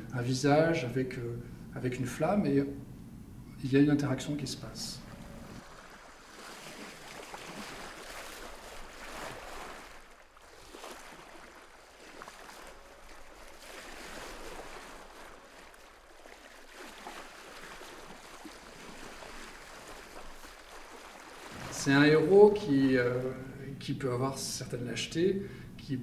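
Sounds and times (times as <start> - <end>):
sea waves washing in: 4.6 - 23.6.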